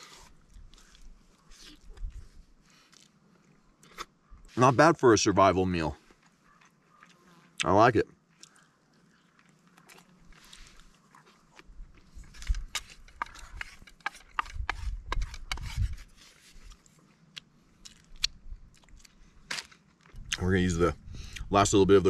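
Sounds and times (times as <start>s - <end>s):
person chewing food: 0.0s - 4.5s, 6.0s - 7.3s, 8.3s - 15.6s, 16.4s - 19.2s
mouth clicks and smacks: 17.3s - 19.1s.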